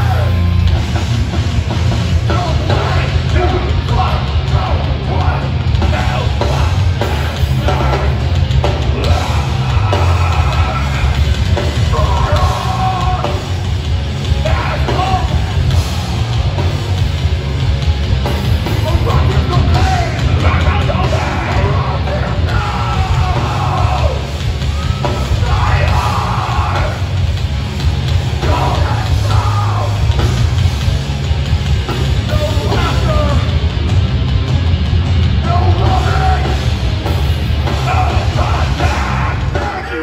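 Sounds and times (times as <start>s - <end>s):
bass guitar: 0.0s - 40.0s
distorted electric guitars: 0.0s - 40.0s
pounding drums: 0.0s - 40.0s
vocalist yelling: 8.9s - 13.4s, 18.8s - 27.2s, 28.4s - 30.1s, 37.8s - 40.0s.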